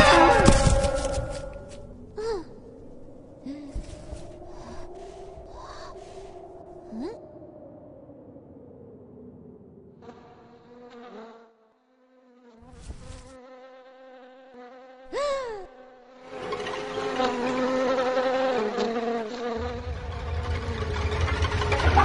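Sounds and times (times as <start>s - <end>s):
buzzing hum: 12.6s - 22.0s
deep rumble: 19.6s - 22.0s.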